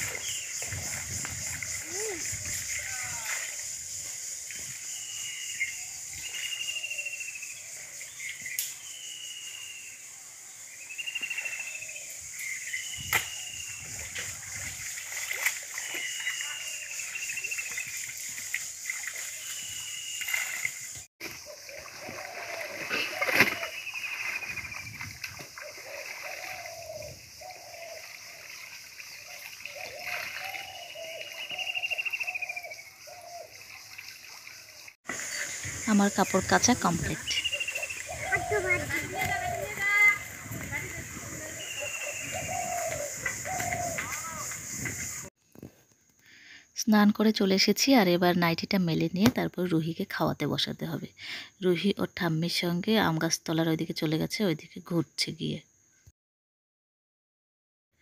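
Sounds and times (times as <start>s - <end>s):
water splashing and sloshing: 0.0s - 4.9s, 13.0s - 45.3s
bird trilling call: 29.7s - 33.6s, 37.0s - 40.3s, 41.0s - 45.3s.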